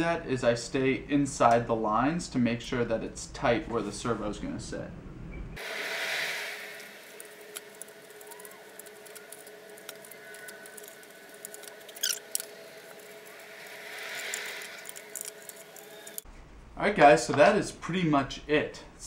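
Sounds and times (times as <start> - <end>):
brief squeaks: 11.9 - 12.3.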